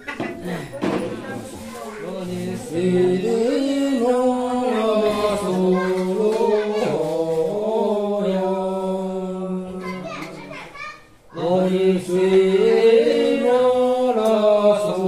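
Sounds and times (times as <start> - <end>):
person singing held notes: 0.4 - 10.5.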